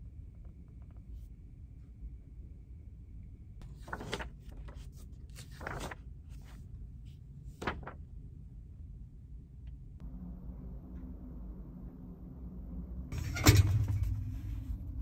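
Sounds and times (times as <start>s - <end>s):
low room hum: 0.0s - 15.0s
paper pages and clothing rustling: 3.6s - 8.0s.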